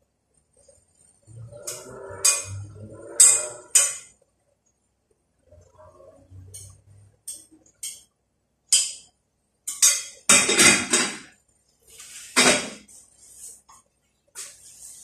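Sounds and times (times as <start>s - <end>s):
metal pots and dishes clanking: 9.7s - 11.3s, 12.3s - 12.8s.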